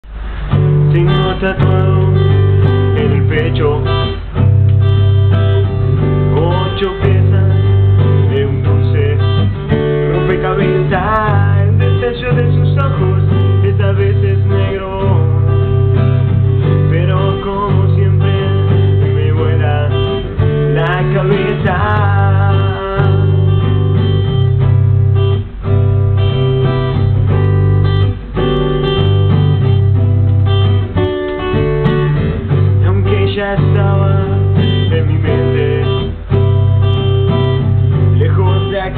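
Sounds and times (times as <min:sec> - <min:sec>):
acoustic guitar strumming chords: 0:00.0 - 0:38.9
man singing: 0:00.7 - 0:04.5, 0:05.4 - 0:24.5, 0:32.7 - 0:38.9.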